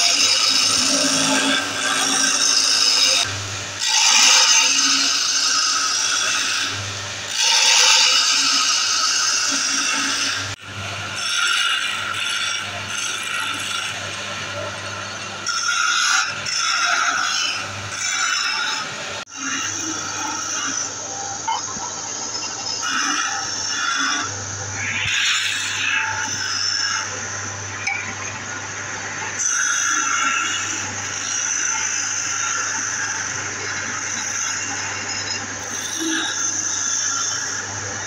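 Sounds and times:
wood lathe humming: 0.0s - 21.4s
chisel scraping spinning wood: 0.0s - 38.0s.

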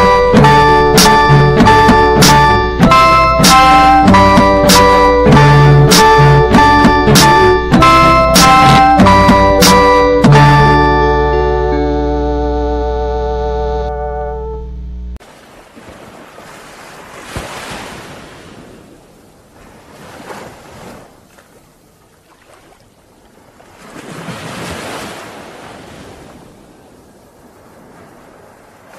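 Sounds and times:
song held notes: 0.0s - 15.2s
ocean waves breaking: 15.2s - 28.9s.

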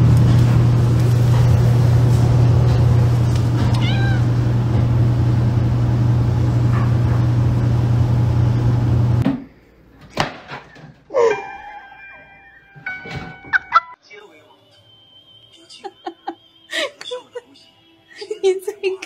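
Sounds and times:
cat meowing: 3.6s - 4.5s.

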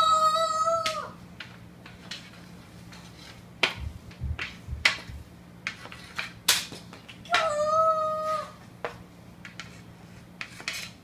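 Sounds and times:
hockey stick clacking on floor: 3.6s - 7.5s
dull low thuds: 3.8s - 5.2s.

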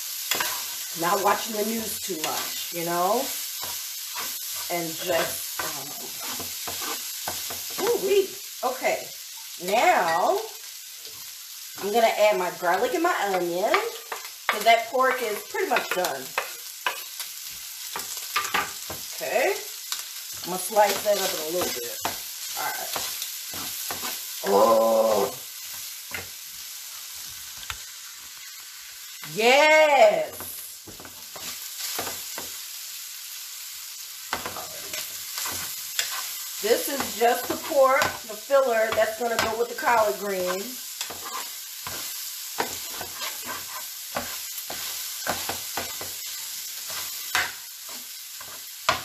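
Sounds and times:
meat sizzling in a skillet: 0.0s - 49.0s
spatula scraping pan: 0.2s - 8.1s, 20.3s - 24.6s, 34.3s - 49.0s.

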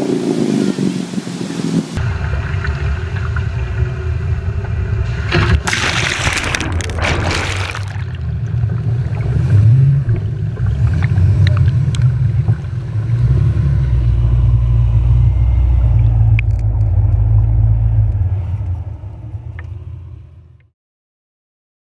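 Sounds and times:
off-road vehicle engine running: 2.0s - 6.0s, 7.8s - 20.6s
water splashing: 2.0s - 13.6s.

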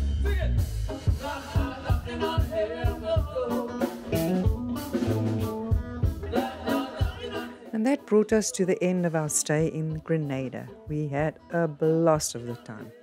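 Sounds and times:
steady drum beat: 0.0s - 7.7s
guitar: 0.0s - 13.0s
person singing: 1.1s - 7.8s.

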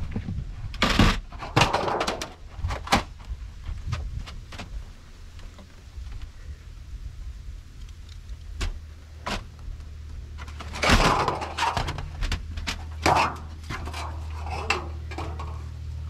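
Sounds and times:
low steady hum: 0.0s - 16.0s
sheet metal scraping and rattling: 10.4s - 16.0s.

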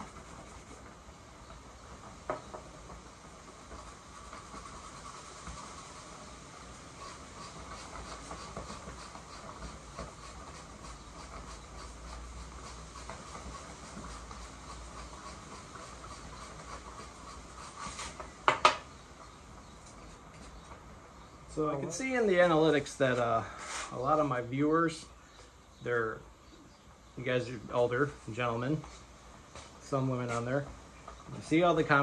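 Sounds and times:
background hum and hiss: 0.0s - 32.0s
sharp knocks: 18.4s - 18.9s.

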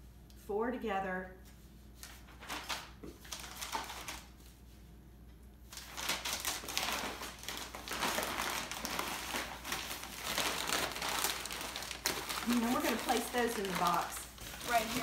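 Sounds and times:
packing paper rustling and crinkling: 2.0s - 4.6s, 5.7s - 15.0s.

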